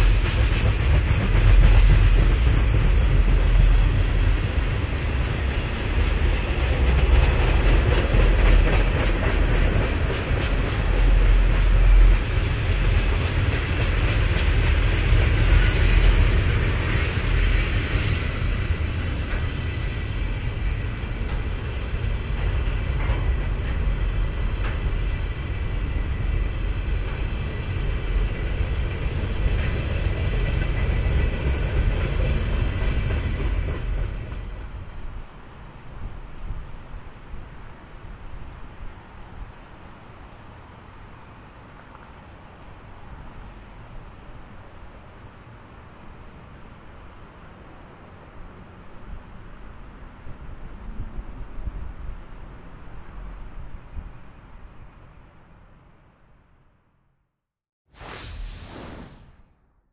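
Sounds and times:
rail clicks: 0.0 - 35.2
steel wheels rumbling on rail: 0.0 - 38.2.

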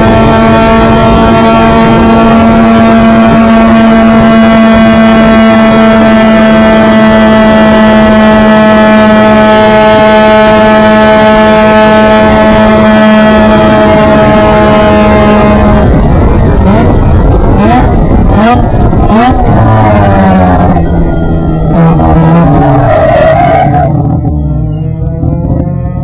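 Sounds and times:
wind buffeting microphone: 0.0 - 23.1
race car engine at high revs: 0.0 - 26.0.

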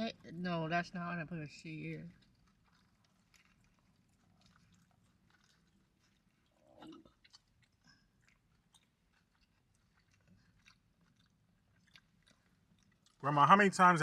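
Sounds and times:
chewing and biting food: 1.7 - 14.0
wet mouth clicks: 2.1 - 13.2.

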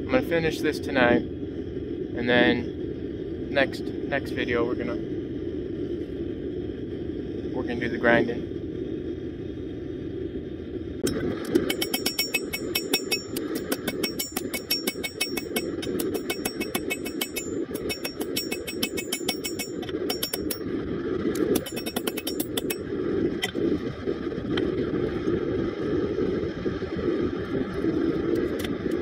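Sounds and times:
forge burner roar: 0.0 - 29.0
hammer striking metal on anvil: 11.0 - 20.7, 21.4 - 22.8.

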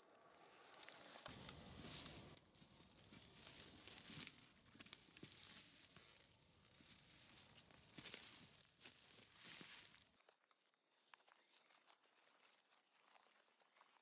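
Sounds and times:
bicycle tyres on leaves: 0.0 - 10.3
twigs snapping: 0.1 - 10.1
footsteps on dry leaves: 0.6 - 10.3.

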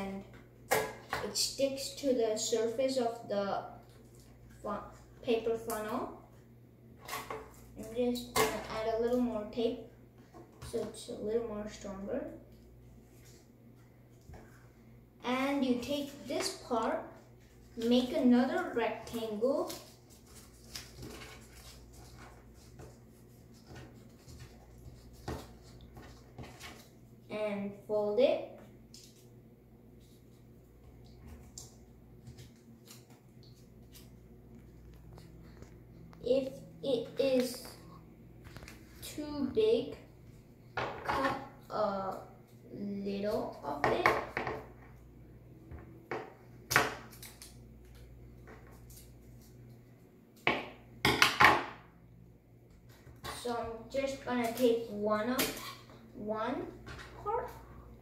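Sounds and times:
paper rustling and crinkling: 19.2 - 27.0.

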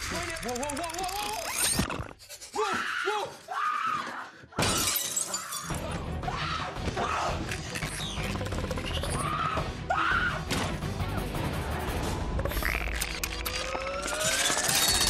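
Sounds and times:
high-pitched screeches and screams: 0.0 - 4.2, 12.4 - 15.0
film score music: 5.7 - 14.3.

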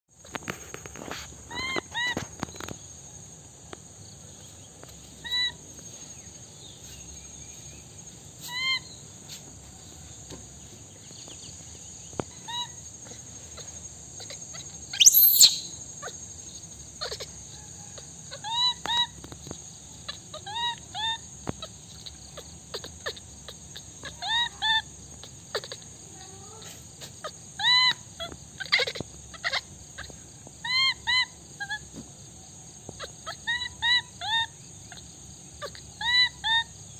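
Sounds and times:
high insect hiss: 0.1 - 36.9
baby monkey crying: 1.5 - 2.2, 5.2 - 5.6, 8.4 - 9.0, 12.3 - 16.2, 17.0 - 17.4, 18.3 - 19.2, 20.0 - 31.9, 32.9 - 36.9.

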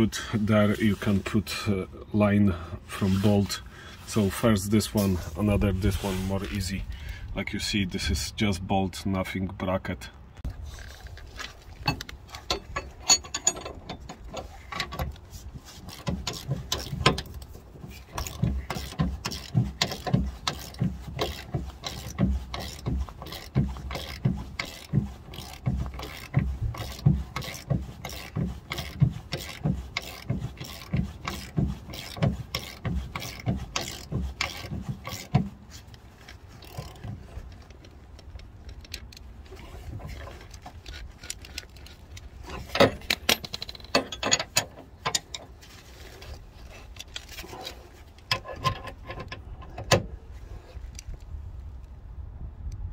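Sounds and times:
ratchet wrench clicking: 18.2 - 35.3.

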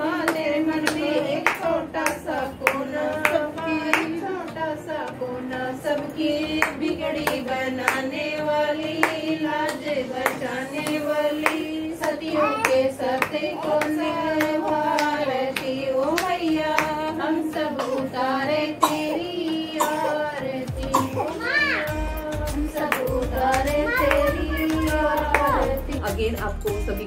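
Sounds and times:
women singing a hymn: 0.0 - 27.0
hand claps: 0.2 - 4.3, 6.6 - 8.2, 8.9 - 18.0, 22.5 - 26.0.

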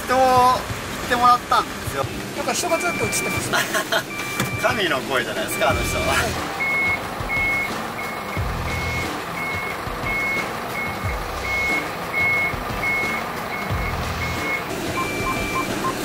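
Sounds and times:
diesel engine running: 0.0 - 16.0
reversing alarm beeping: 2.6 - 3.5, 4.1 - 4.8, 5.5 - 16.0.

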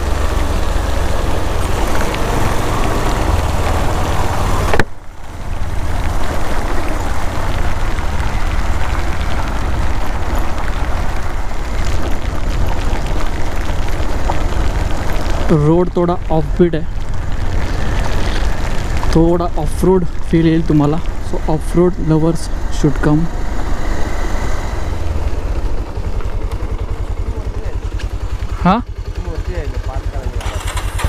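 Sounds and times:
motorcycle engine running: 0.0 - 31.0.

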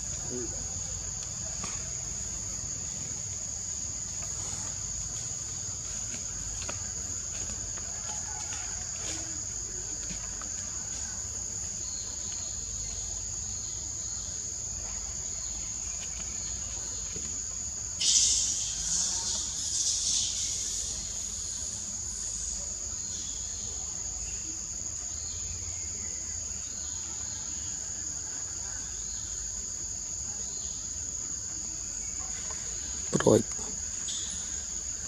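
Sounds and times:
insect chorus: 0.0 - 35.0
hiss-like buzz: 18.0 - 23.3.

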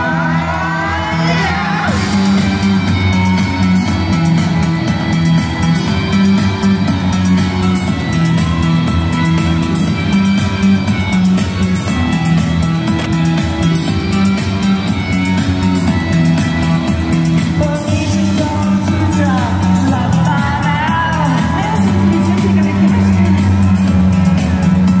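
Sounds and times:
electric guitar riff: 0.0 - 24.3
live rock music: 0.0 - 25.0
person singing: 17.1 - 24.2.

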